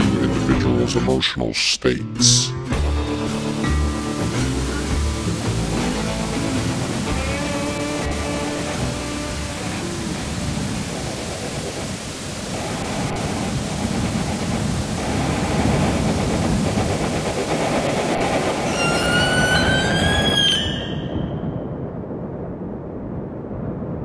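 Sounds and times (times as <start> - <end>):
rising whine: 2.7 - 13.8
dense rumbling rushing noise: 2.7 - 24.0.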